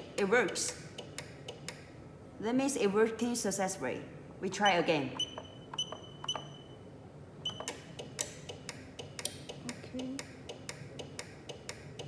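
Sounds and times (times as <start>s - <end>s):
keypad beep: 5.2s - 6.8s, 7.4s - 7.8s.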